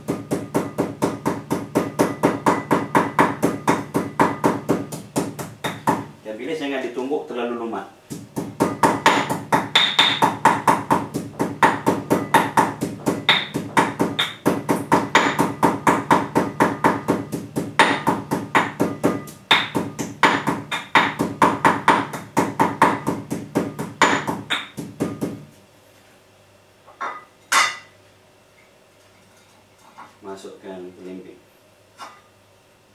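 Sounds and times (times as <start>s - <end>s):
pestle pounding in mortar: 0.0s - 6.1s, 8.1s - 25.5s.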